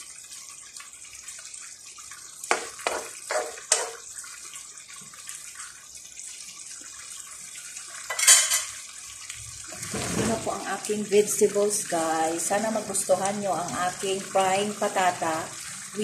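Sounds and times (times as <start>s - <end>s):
stew simmering in a frying pan: 0.0s - 16.0s
spatula scraping and knocking pan: 2.5s - 4.1s.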